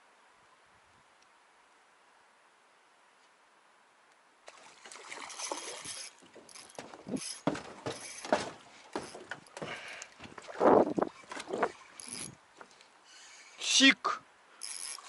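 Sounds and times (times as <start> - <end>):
gear clattering against hull: 5.8 - 12.8
knocks and rattles on metal boat: 6.3 - 12.7.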